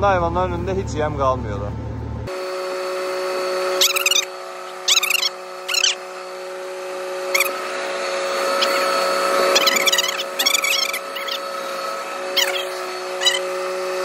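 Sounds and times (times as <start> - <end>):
steady mechanical hum: 0.0 - 2.6, 3.6 - 14.0
cat meowing: 3.8 - 6.0, 8.5 - 11.5, 12.4 - 13.6.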